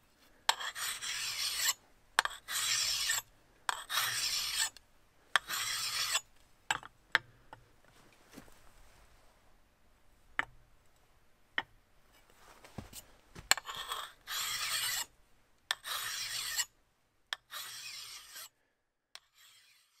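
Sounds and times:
file stroking steel: 0.5 - 4.8, 5.4 - 6.2, 13.6 - 15.1, 15.7 - 16.7, 17.4 - 18.6, 19.2 - 20.0
sharp clicks of file on steel: 0.5 - 4.8, 5.4 - 7.3, 15.7 - 16.7, 19.2 - 20.0.

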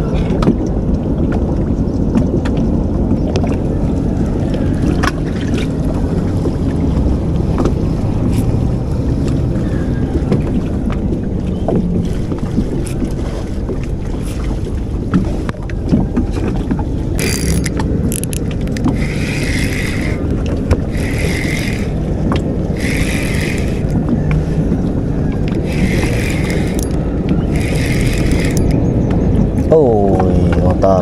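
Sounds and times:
low rumble: 0.0 - 31.0
fishing reel being cranked: 17.2 - 20.3, 20.9 - 22.0, 22.8 - 24.0, 25.6 - 28.8.

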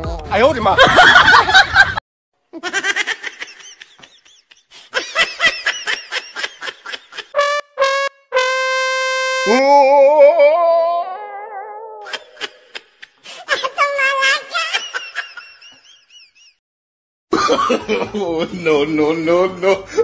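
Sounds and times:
long held brass note: 7.4 - 9.7
horn-like blasts: 7.4 - 9.9
wobbling brass wail: 7.4 - 11.8.

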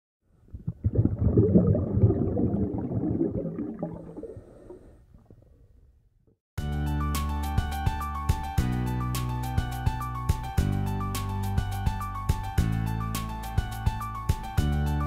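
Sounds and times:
underwater bubbling: 0.4 - 5.9
music: 6.6 - 15.0.

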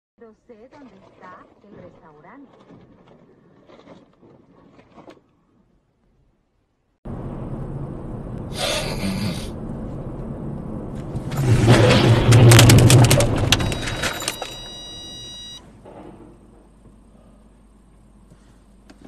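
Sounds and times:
road and engine noise in car: 7.0 - 15.6
car crash metal and glass: 11.1 - 15.1
high electronic tone: 12.5 - 15.6.

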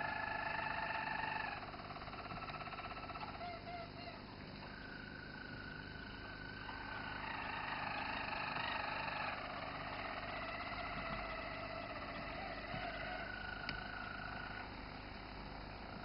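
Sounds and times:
canary singing rolled notes: 6.5 - 15.0.

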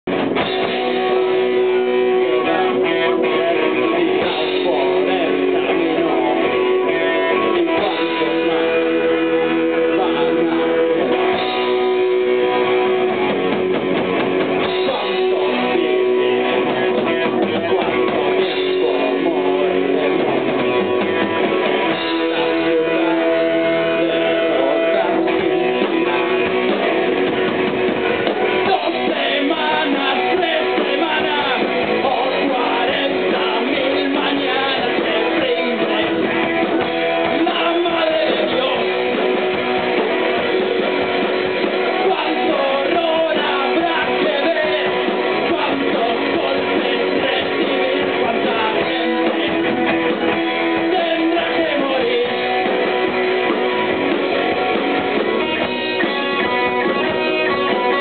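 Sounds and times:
bass guitar: 0.0 - 58.0
drum kit: 0.0 - 58.0
electric guitars: 0.0 - 58.0.

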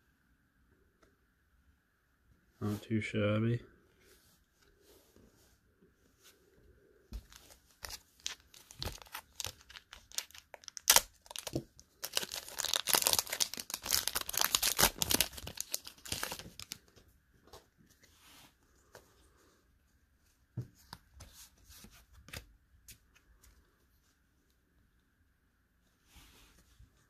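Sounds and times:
foil wrapper crinkling: 7.4 - 16.8
foil wrapper ripping: 8.2 - 16.7.

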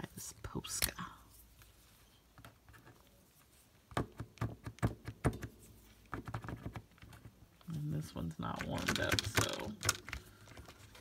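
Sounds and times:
marker tapping on sticky notes: 3.9 - 7.4, 8.5 - 10.8.

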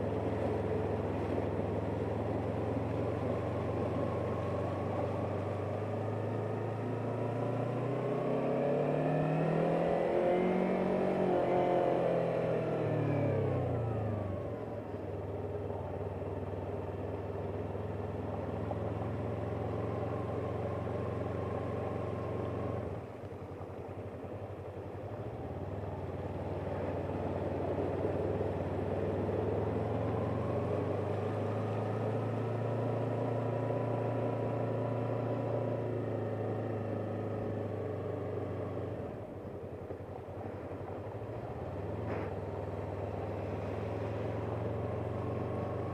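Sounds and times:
motorcycle engine revving: 2.5 - 14.6, 26.1 - 39.2, 41.6 - 45.9.

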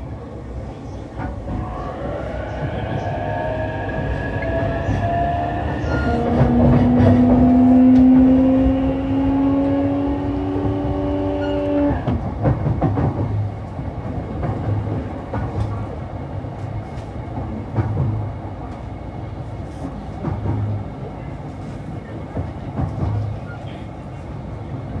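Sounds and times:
train rumble: 0.0 - 25.0
electric train inverter tones: 1.5 - 12.1.

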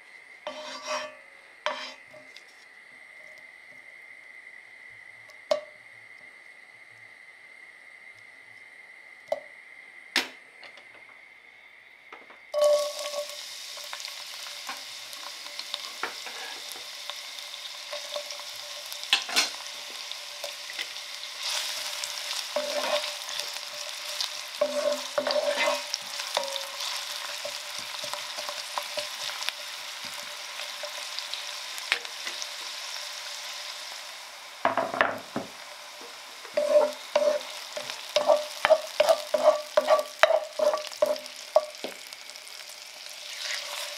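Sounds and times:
lard melting in pot: 0.0 - 3.6, 12.5 - 43.9
onions sizzling in hot fat: 0.0 - 10.0, 11.3 - 43.9
wooden spatula scraping pot: 0.5 - 2.0, 22.6 - 23.4, 24.6 - 26.0, 36.5 - 41.3.

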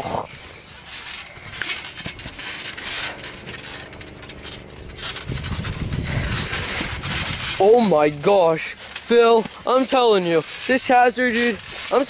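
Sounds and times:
scuffling and rustling on mat: 0.1 - 12.0.

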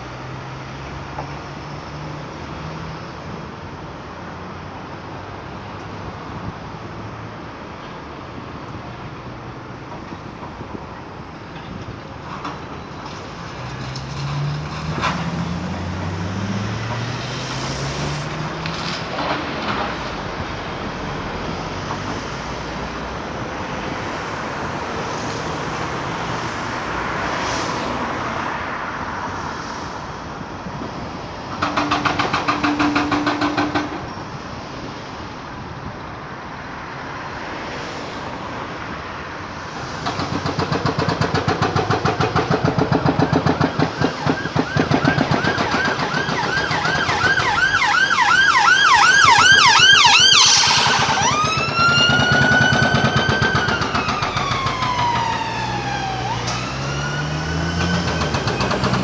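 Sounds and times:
urban traffic noise: 0.0 - 59.0
emergency vehicle siren: 39.2 - 59.0.

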